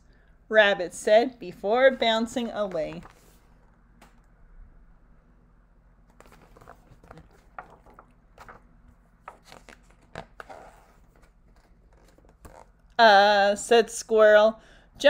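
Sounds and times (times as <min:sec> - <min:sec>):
faint steady hum: 0:00.0 - 0:15.0
paper pages rustling and turning: 0:02.4 - 0:03.6, 0:06.1 - 0:12.9.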